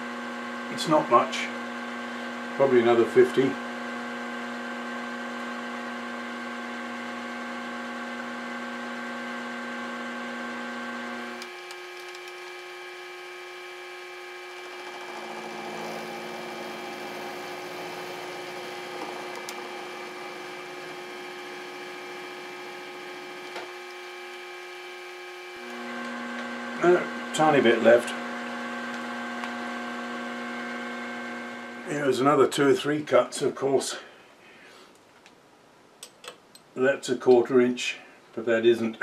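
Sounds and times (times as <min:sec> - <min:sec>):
milling machine spindle humming: 0:00.0 - 0:32.0
rough cutting noise: 0:14.1 - 0:29.7.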